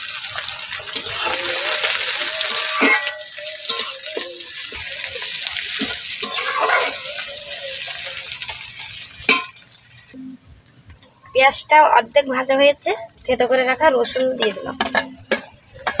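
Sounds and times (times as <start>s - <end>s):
onions sizzling in oil: 0.0s - 10.2s, 14.4s - 16.0s
spatula scraping a pan: 0.9s - 8.6s, 14.0s - 16.0s.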